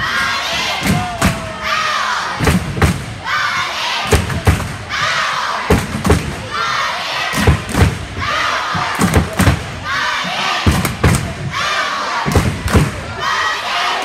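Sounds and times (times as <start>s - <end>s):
crowd chanting in rhythm: 0.0s - 14.0s
heavy stomps: 2.4s - 3.3s, 4.1s - 5.1s, 5.7s - 6.5s, 7.4s - 9.8s, 10.6s - 11.6s, 12.2s - 13.1s.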